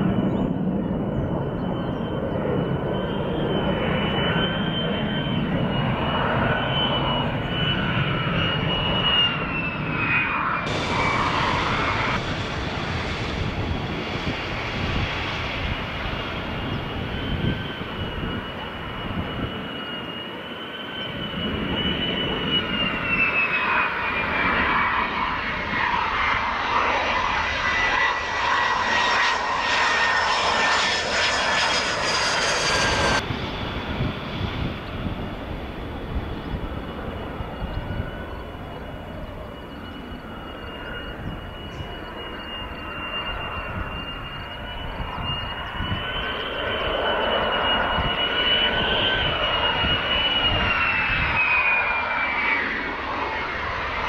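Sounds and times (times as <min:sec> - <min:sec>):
jet engine whine and roar: 0:00.0 - 0:54.0.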